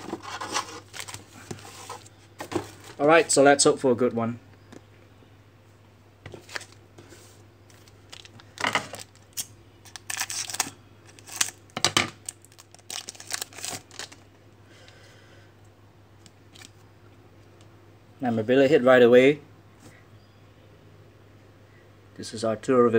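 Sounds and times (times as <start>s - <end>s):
foil wrapper tearing and crinkling: 0.0s - 2.0s, 7.7s - 11.6s, 12.2s - 14.2s.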